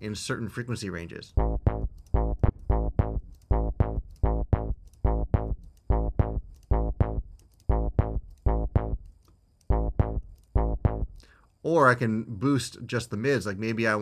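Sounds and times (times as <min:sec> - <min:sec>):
synth bass loop: 0:01.4 - 0:09.1, 0:09.7 - 0:11.2.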